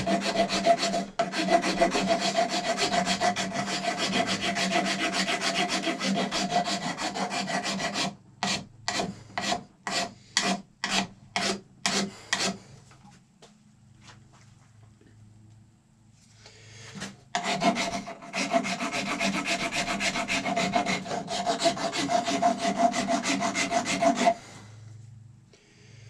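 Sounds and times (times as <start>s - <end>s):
rasp filing horn: 0.0s - 12.6s, 17.4s - 24.6s.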